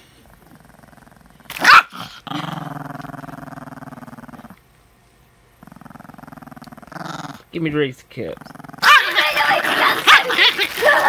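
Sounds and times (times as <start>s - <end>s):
dog growling: 0.0s - 4.6s, 5.6s - 7.6s, 8.2s - 10.2s
dog snarling bark: 0.6s - 4.6s, 8.4s - 10.6s.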